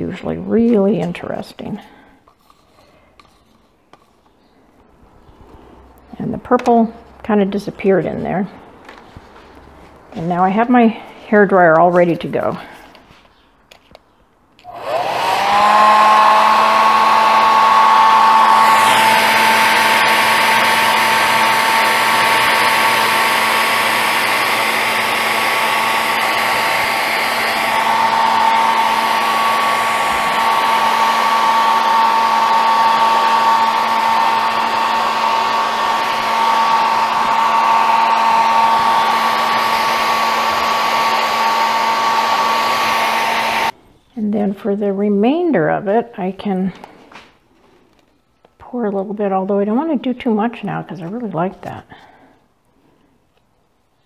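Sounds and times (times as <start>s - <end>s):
hair dryer running: 14.6s - 43.8s.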